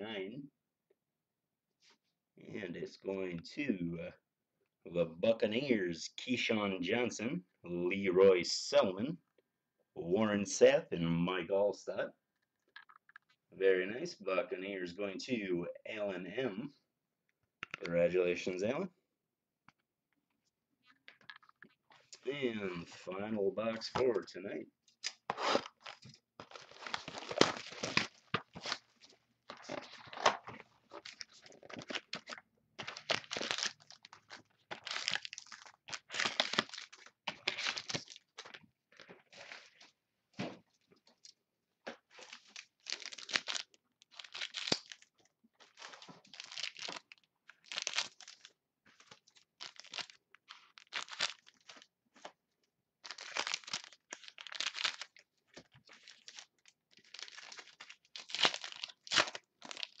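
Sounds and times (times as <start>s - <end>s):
plastic wrapping crinkling and tearing: 25.0s - 39.8s, 42.1s - 52.3s, 53.0s - 60.0s.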